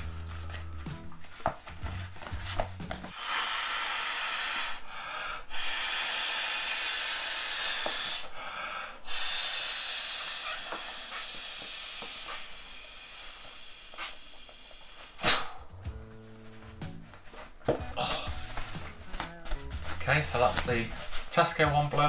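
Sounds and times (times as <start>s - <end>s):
man blowing into inflatable pillow: 1.8s - 16.1s, 17.7s - 19.9s.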